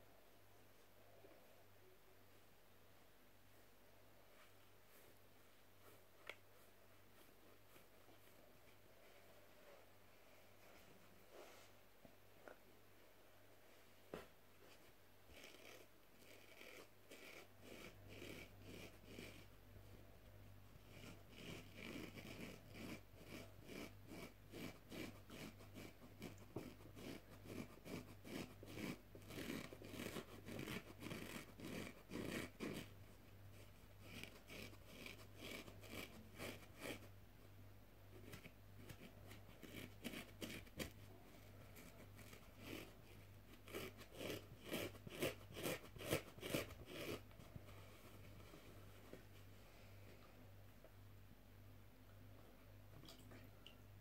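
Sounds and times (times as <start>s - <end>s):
nails scratching foam sponge: 14.7s - 20.1s, 20.7s - 37.2s, 38.1s - 49.1s.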